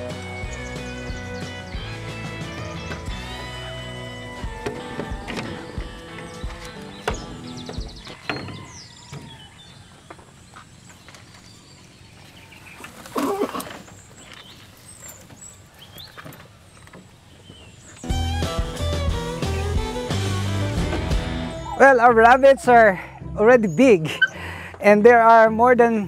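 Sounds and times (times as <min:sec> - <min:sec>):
background music: 0:00.0 - 0:08.8, 0:18.0 - 0:26.0
quiet farm ambience: 0:03.6 - 0:18.1.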